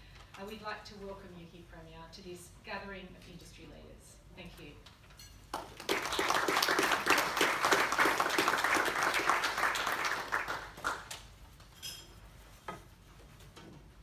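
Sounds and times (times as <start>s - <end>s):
audience applauding: 5.6s - 11.2s.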